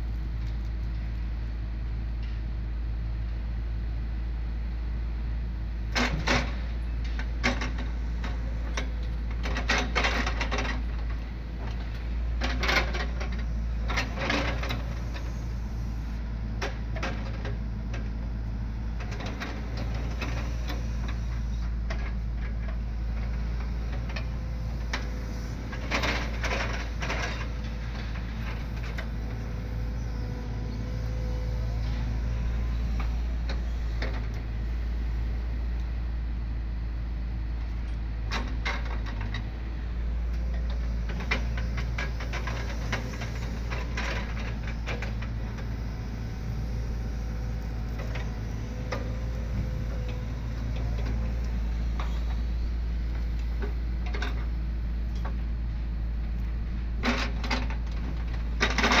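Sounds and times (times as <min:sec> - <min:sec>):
hydraulic excavator running: 0:05.7 - 0:59.0.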